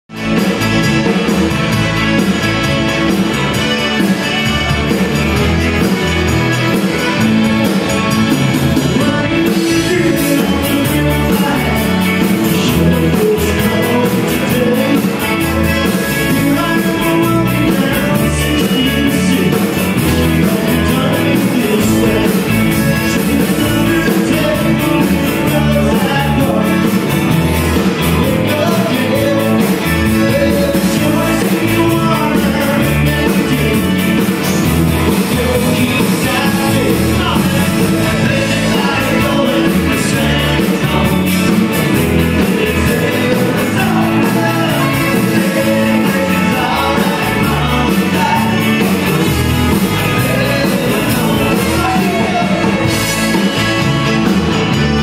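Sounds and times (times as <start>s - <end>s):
live country band playing: 0.1s - 55.0s
lead singer: 0.2s - 55.0s.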